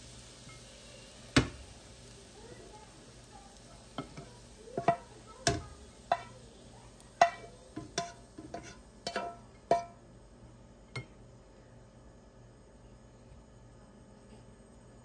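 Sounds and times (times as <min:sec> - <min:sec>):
spatula knocking and scraping pan: 0:03.9 - 0:06.4, 0:07.2 - 0:10.0.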